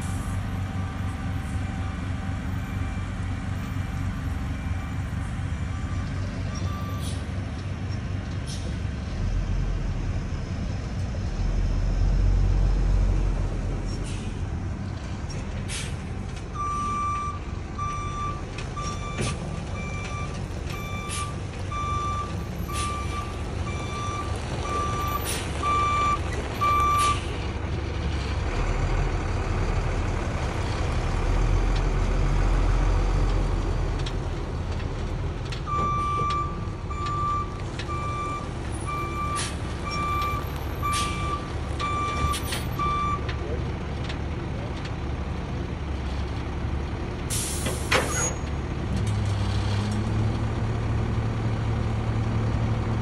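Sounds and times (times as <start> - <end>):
diesel engine running: 0.0 - 53.0
backup alarm beeping: 35.7 - 43.2.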